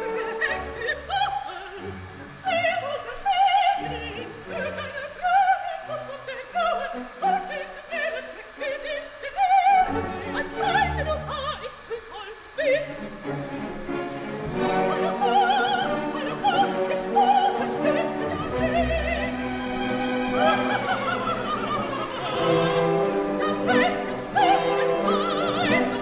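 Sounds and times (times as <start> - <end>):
operatic singing with vibrato: 0.0 - 26.0
orchestral accompaniment: 12.5 - 26.0.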